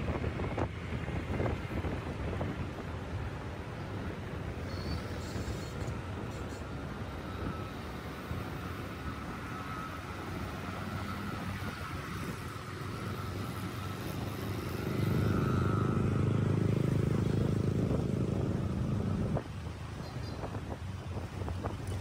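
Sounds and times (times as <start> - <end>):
road traffic hum: 0.0 - 22.0.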